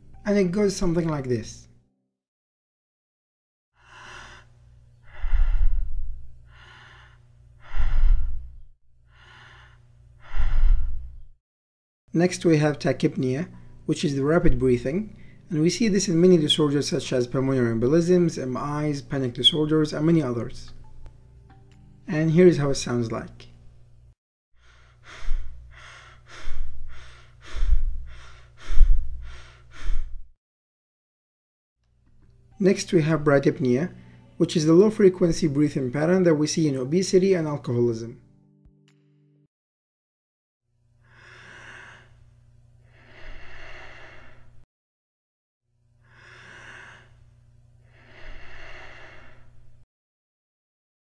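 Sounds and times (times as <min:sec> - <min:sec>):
person breathing: 0:03.8 - 0:11.3, 0:15.1 - 0:15.5, 0:24.6 - 0:30.3, 0:41.0 - 0:44.6, 0:46.0 - 0:49.6.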